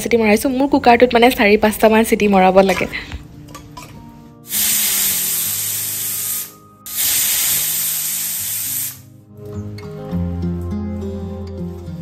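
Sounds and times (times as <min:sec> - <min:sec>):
pressure cooker steam hissing: 0:04.5 - 0:09.1.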